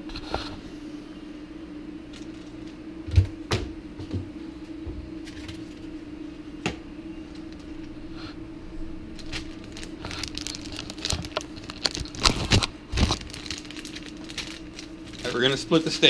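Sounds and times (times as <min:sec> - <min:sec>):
low hum: 0:00.0 - 0:15.4
crinkling and rustling handling: 0:09.1 - 0:16.0.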